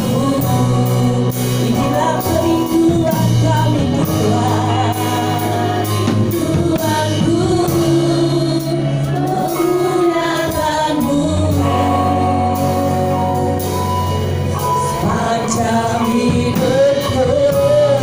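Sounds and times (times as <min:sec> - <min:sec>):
instrumental backing: 0:00.0 - 0:18.0
women singing worship song: 0:00.0 - 0:18.0.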